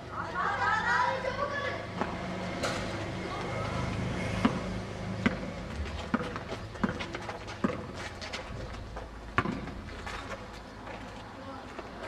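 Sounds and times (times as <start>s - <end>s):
basketball bouncing on concrete: 1.9s - 10.5s
footsteps scuffing and running: 5.3s - 12.0s.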